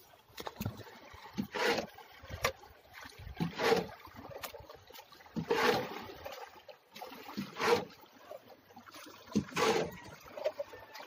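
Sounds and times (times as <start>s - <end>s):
water splashing: 0.0s - 11.0s.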